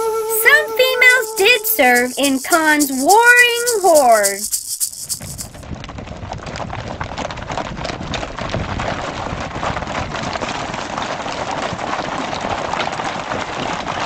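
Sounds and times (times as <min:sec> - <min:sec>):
horses galloping: 0:01.0 - 0:05.6.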